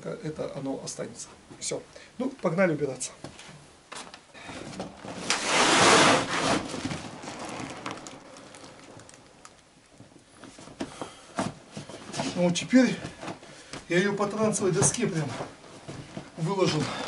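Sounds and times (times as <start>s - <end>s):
fabric rustling: 3.4s - 17.0s.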